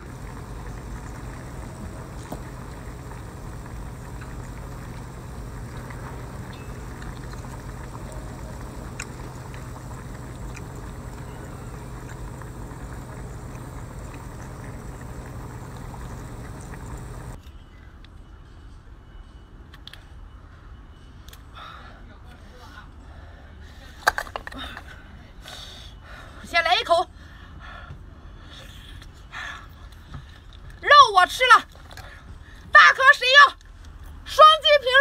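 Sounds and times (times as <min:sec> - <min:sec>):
boat engine droning: 0:00.0 - 0:17.4.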